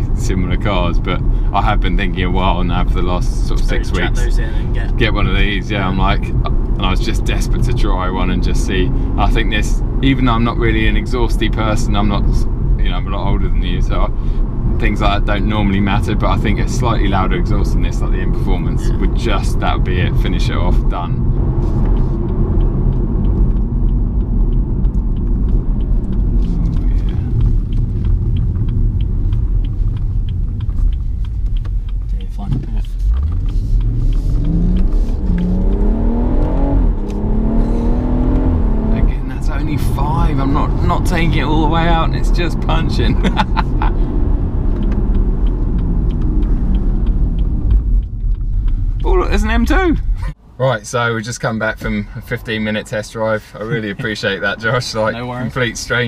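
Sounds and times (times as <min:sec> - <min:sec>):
car engine and tyres rumbling: 0:00.0 - 0:56.0
faint light ticking: 0:04.5 - 0:37.1, 0:39.1 - 0:50.4.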